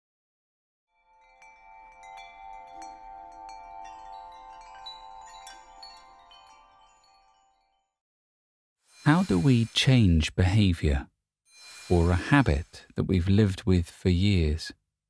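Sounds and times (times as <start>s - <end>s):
chimes tinkling: 1.0s - 8.0s
held chime tones: 1.2s - 7.9s, 8.9s - 10.1s.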